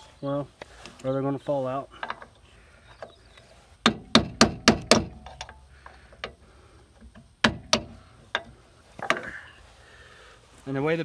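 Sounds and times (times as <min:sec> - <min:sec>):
sledgehammer striking metal pin: 0:03.8 - 0:05.6, 0:07.4 - 0:09.3.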